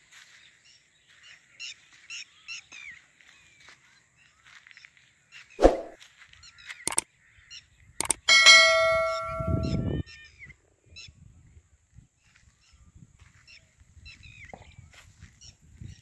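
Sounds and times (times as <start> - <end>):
mouse clicks: 8.0 - 8.3
bell ding: 8.0 - 9.9.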